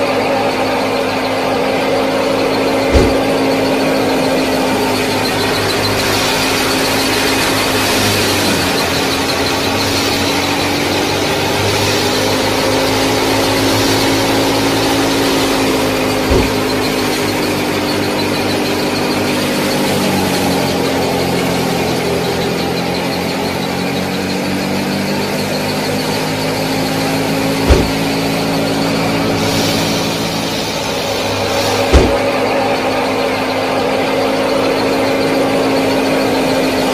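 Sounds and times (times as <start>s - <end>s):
small motor whining: 0.0s - 36.9s
hiss: 1.6s - 36.9s
sharp knocks: 2.8s - 18.6s, 27.4s - 28.6s, 31.2s - 32.6s.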